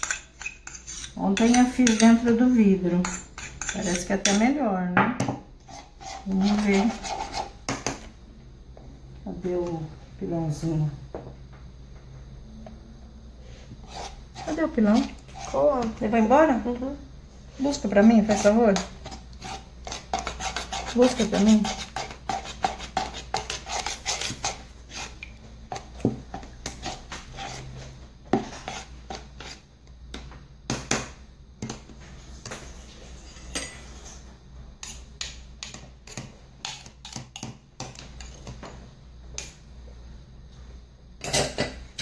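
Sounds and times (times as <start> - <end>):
metal spoon scraping in a cup: 0.0 - 2.3, 3.0 - 4.5, 5.6 - 7.5, 13.8 - 16.0, 17.7 - 25.2, 26.6 - 27.8.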